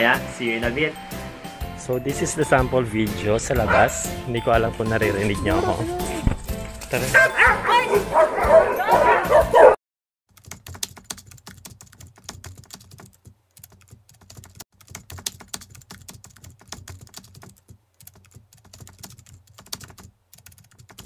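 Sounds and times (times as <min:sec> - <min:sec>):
keyboard typing: 0:10.3 - 0:21.0.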